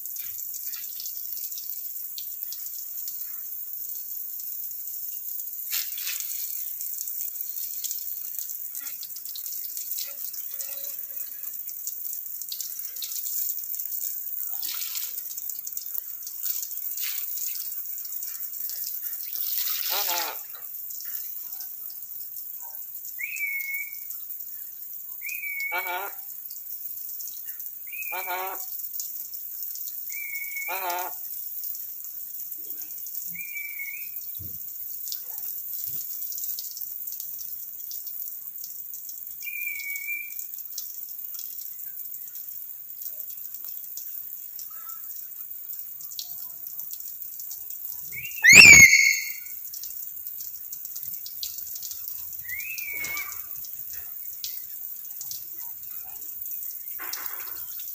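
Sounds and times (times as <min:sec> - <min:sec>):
parrot gurgling chatter: 0:19.9 - 0:20.4, 0:25.7 - 0:26.1, 0:28.1 - 0:28.6, 0:30.7 - 0:31.1, 0:48.4 - 0:49.4
parrot whistled calls: 0:48.2 - 0:49.5.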